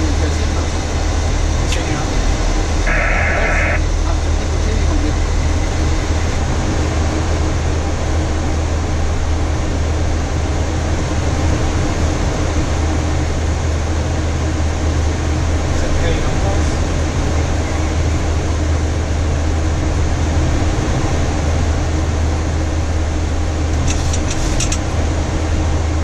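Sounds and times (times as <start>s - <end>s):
aircraft cockpit drone: 0.0s - 26.0s
rush of air: 2.9s - 3.8s.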